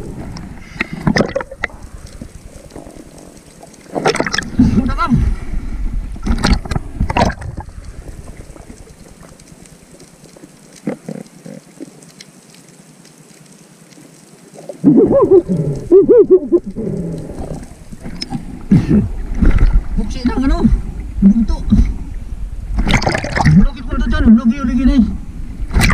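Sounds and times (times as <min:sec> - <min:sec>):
water splashing: 0:00.0 - 0:24.8, 0:25.5 - 0:25.9
loud bubbling and sloshing: 0:04.0 - 0:04.9, 0:06.3 - 0:08.8, 0:22.7 - 0:23.8
muffled underwater hush: 0:14.5 - 0:20.0.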